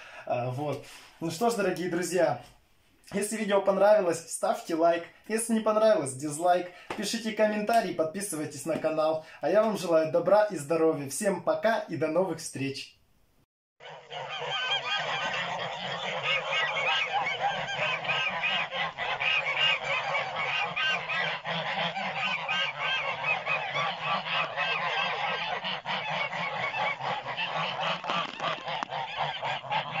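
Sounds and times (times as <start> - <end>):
geese honking and cackling: 13.8 - 30.0.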